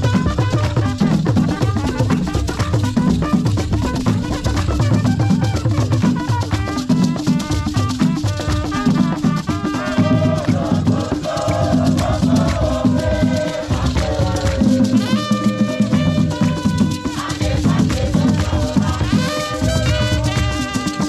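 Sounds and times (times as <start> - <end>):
drum ensemble playing: 0.0 - 21.0
rattles shaking: 0.0 - 21.0
voices singing: 9.6 - 21.0.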